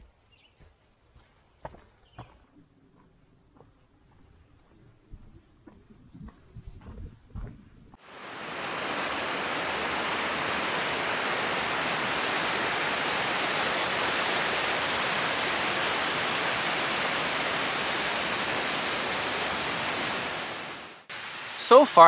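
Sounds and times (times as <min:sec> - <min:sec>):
river water rushing over rocks: 0:08.0 - 0:22.0.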